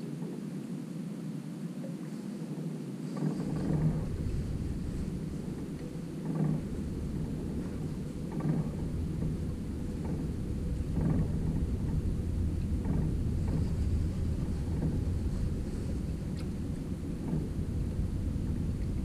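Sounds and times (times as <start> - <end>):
wind rumble: 0.0 - 19.0
water slapping boat hull: 3.1 - 19.0.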